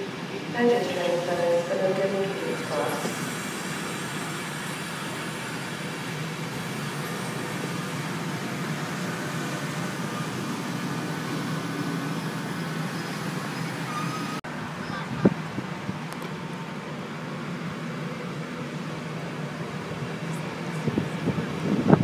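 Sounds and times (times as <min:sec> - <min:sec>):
wheel-on-rail noise: 0:00.0 - 0:15.1
electric train running past: 0:00.0 - 0:22.0.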